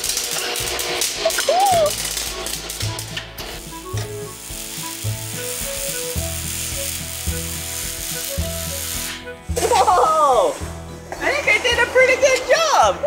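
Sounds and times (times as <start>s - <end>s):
welding arc crackling: 0.0s - 10.6s.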